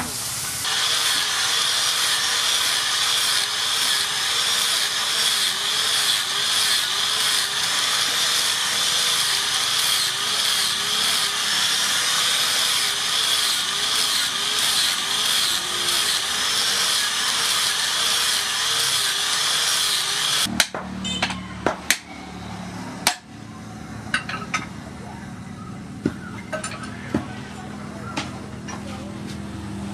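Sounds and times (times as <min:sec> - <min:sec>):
angle grinder sanding wood: 0:00.0 - 0:20.5.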